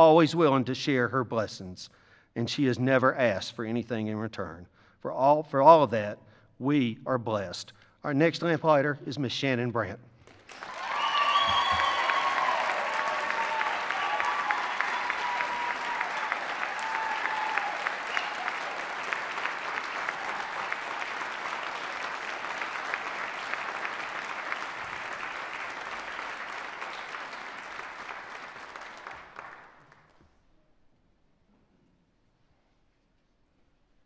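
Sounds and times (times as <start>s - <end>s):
audience applauding: 10.3s - 30.2s.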